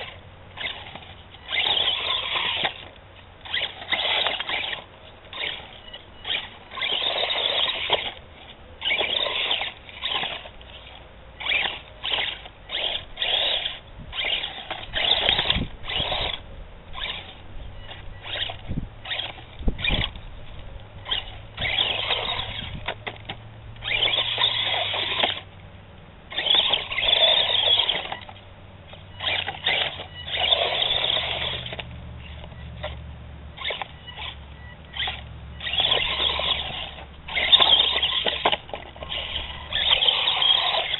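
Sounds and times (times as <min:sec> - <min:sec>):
toy truck electric motor whining: 0:00.0 - 0:25.5, 0:26.3 - 0:33.0, 0:33.6 - 0:40.9.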